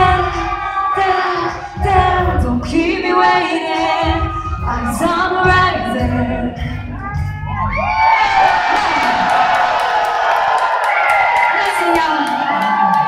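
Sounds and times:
crowd whooping: 0.0 - 1.8, 7.1 - 13.0
woman singing pop vocals: 0.0 - 7.2
electronic backing track with bass beat: 0.0 - 10.6.

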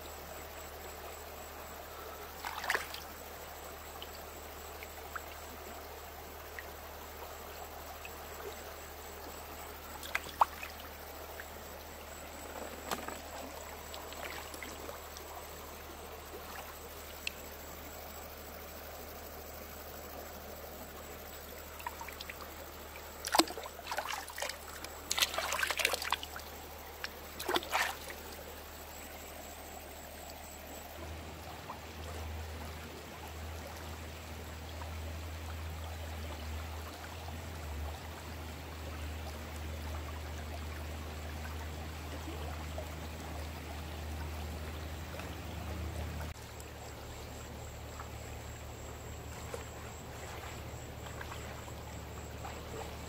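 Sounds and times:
stream flowing over rocks: 1.4 - 18.8, 19.8 - 53.0
hand splashing in water: 27.4 - 28.1.

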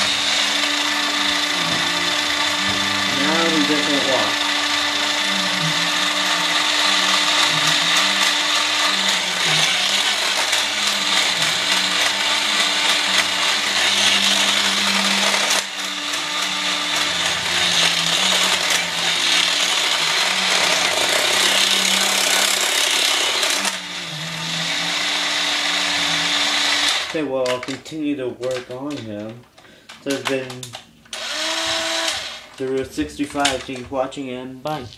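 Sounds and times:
toy robot motor and gears: 0.0 - 27.7, 30.0 - 33.8.

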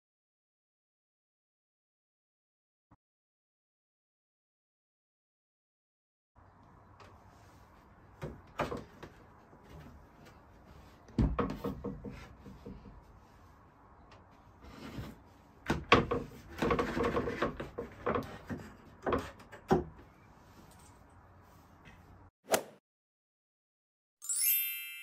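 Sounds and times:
plywood panels knocking and rubbing: 8.1 - 13.2, 14.2 - 20.1.

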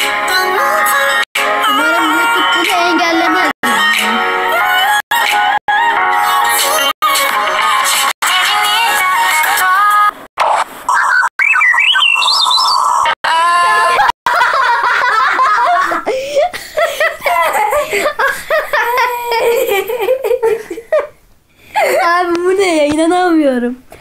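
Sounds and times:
people laughing hard: 13.4 - 21.2
high-pitched giggling: 17.0 - 21.2.

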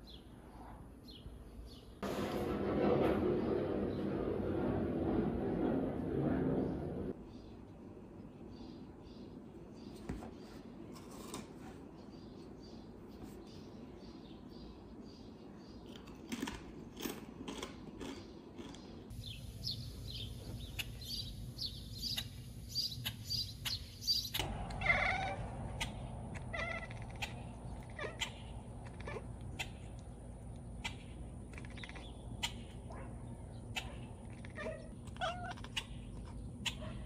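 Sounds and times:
bird chirping outdoors: 0.0 - 2.0, 7.1 - 10.9, 11.8 - 16.3, 17.8 - 37.0.

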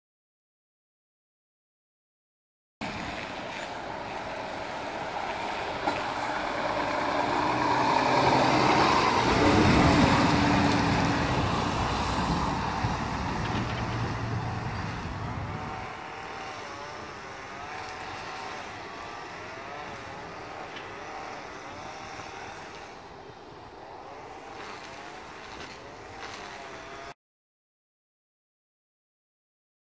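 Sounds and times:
lorry diesel engine passing: 2.8 - 16.1.

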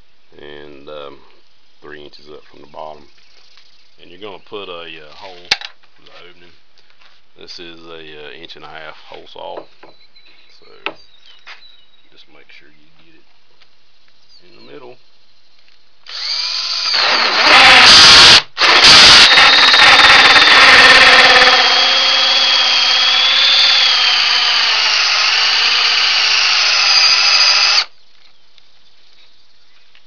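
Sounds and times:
drill motor whine: 16.1 - 27.9
hole saw cutting into wood: 16.1 - 27.9.

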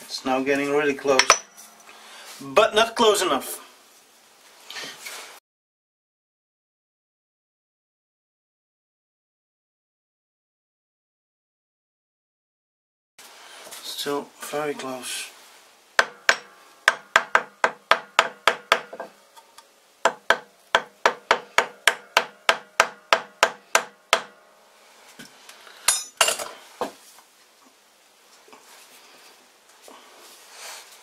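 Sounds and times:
hammer tapping on steel chuck: 16.0 - 24.3.

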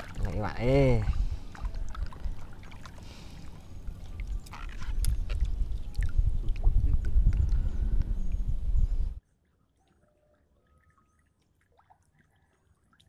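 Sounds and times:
water sloshing and splashing: 0.0 - 7.6, 9.4 - 13.0
low rumble: 3.8 - 9.2.

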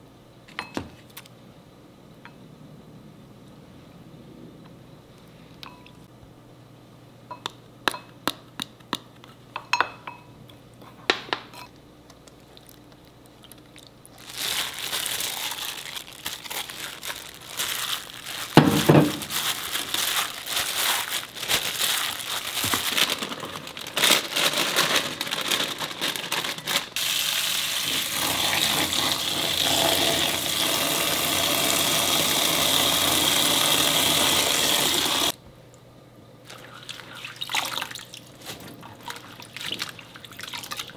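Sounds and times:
wet squishing of meat mixing: 36.5 - 40.9.

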